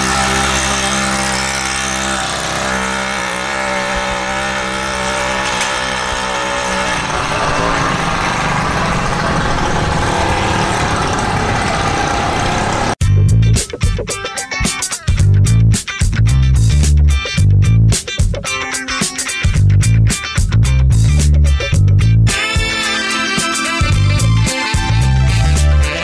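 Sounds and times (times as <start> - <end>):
small motorbike engine running: 0.0 - 13.0.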